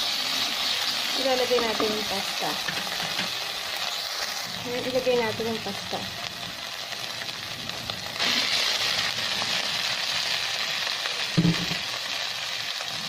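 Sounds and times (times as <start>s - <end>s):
sauce sizzling in a pan: 0.0s - 13.0s
short knock: 11.4s - 11.8s.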